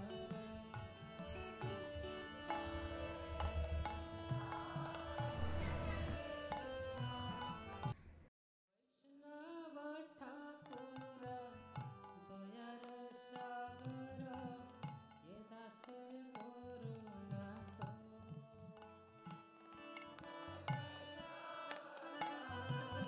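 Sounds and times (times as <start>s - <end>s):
tabla rhythm: 0.0s - 8.0s, 10.5s - 23.0s
gliding melody: 1.4s - 7.9s.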